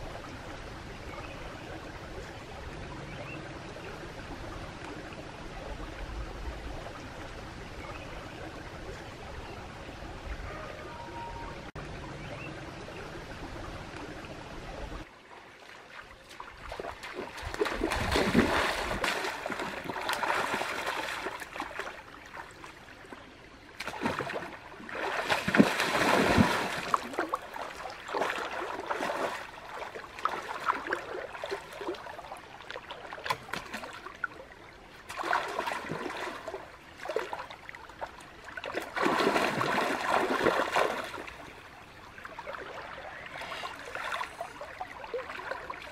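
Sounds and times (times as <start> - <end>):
stream flowing: 0.0 - 45.9
water splashing from wading: 15.0 - 45.9.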